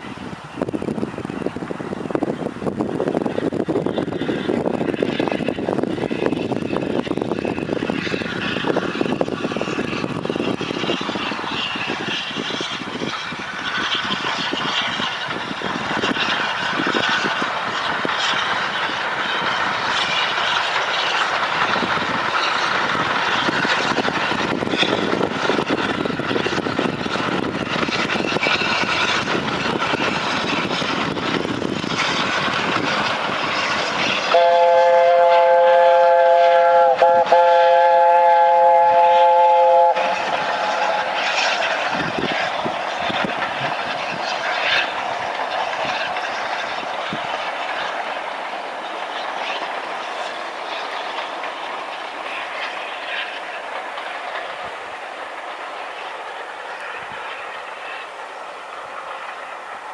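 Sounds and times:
steam locomotive rumble and clatter: 0.0s - 59.9s
steam locomotive chime whistle: 34.2s - 41.2s.

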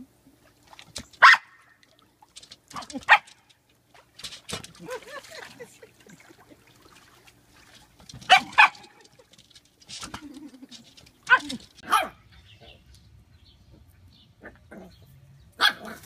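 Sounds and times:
dog barking: 1.2s - 1.6s, 8.3s - 8.9s, 11.3s - 12.2s, 15.6s - 16.0s.

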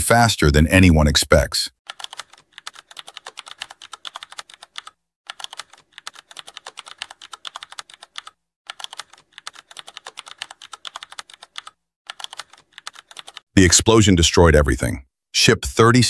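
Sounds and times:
keyboard typing clicks: 1.9s - 13.4s.

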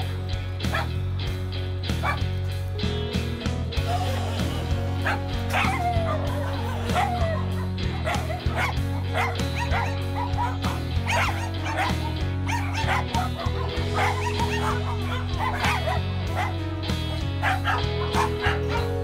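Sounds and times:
background music with held notes: 0.0s - 19.0s
dogs yipping and whining: 5.0s - 16.6s, 17.4s - 19.0s.

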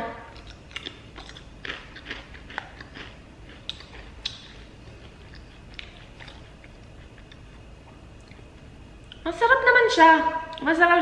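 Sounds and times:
potato chip crunching: 0.3s - 7.4s.

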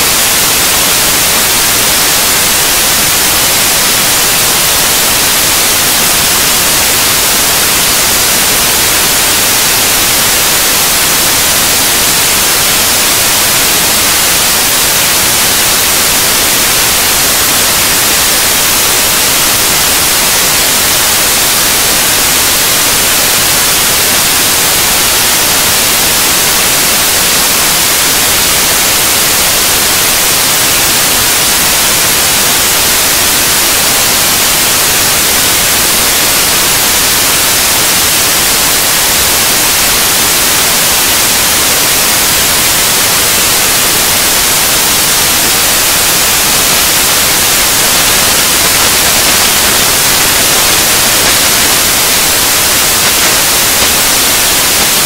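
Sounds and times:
waterfall hiss: 0.0s - 55.0s.

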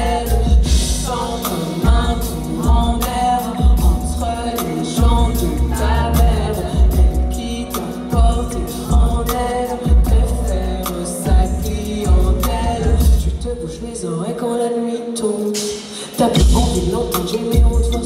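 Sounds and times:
deep pulsing bass line: 0.0s - 13.5s
drum hits: 0.4s - 5.4s, 16.4s - 17.9s
woman singing into a microphone: 12.8s - 18.0s.

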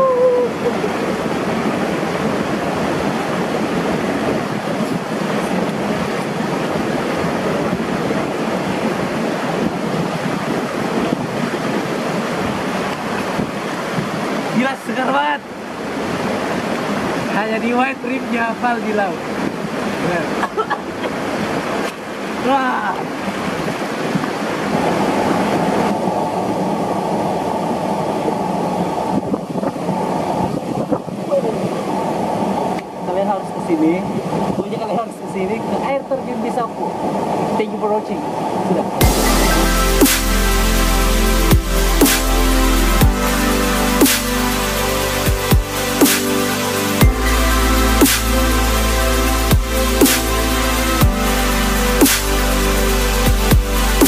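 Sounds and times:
water cascading over rocks: 0.0s - 54.0s
waterfall splashing into pool: 39.0s - 54.0s.

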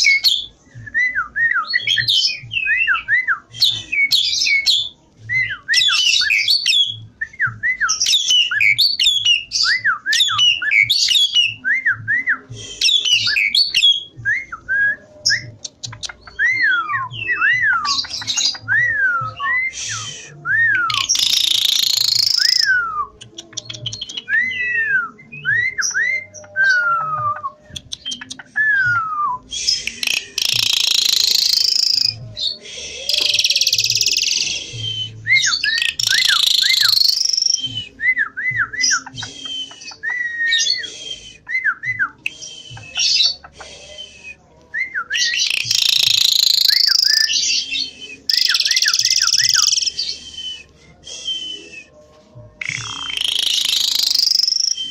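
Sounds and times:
starling whistled song: 0.0s - 54.9s
bird chattering: 20.9s - 24.1s, 29.8s - 32.2s, 35.7s - 37.7s, 52.7s - 54.8s.

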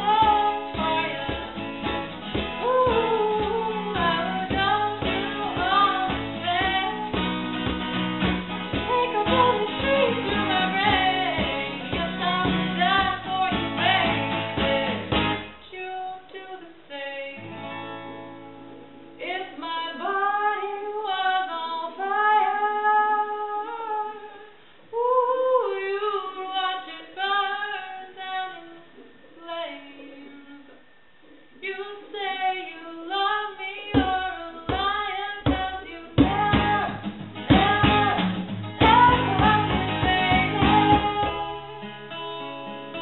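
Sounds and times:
woman singing: 0.0s - 17.5s, 19.2s - 30.8s, 31.5s - 42.2s
acoustic guitar: 0.0s - 43.0s.

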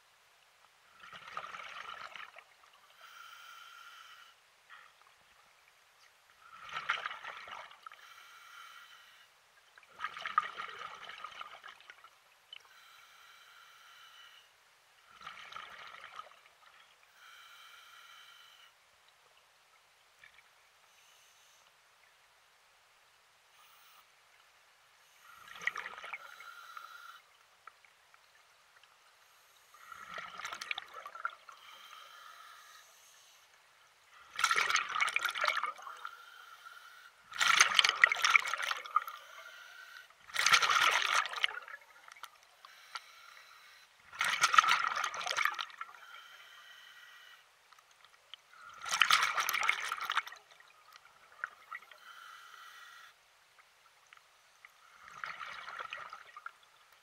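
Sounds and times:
water sloshing and trickling: 4.9s - 8.0s, 9.6s - 12.6s, 15.0s - 17.0s, 29.8s - 31.7s, 34.1s - 36.1s, 37.3s - 39.3s, 40.0s - 42.5s, 44.0s - 46.0s, 47.7s - 52.0s, 53.6s - 57.0s.

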